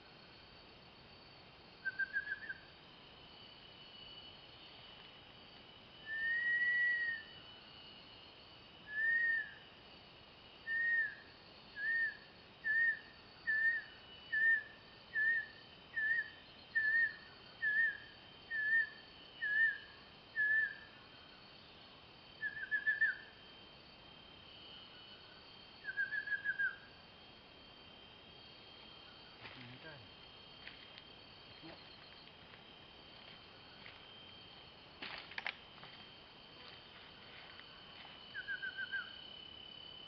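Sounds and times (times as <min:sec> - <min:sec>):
faint high insect drone: 0:00.0 - 0:40.0
kingfisher whistling song: 0:01.8 - 0:02.6, 0:22.4 - 0:23.2, 0:25.8 - 0:26.8.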